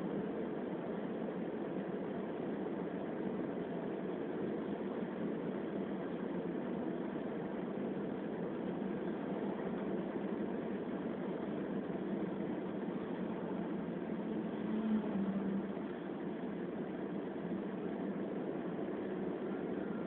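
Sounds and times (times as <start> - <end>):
car road and engine noise: 0.0 - 20.0.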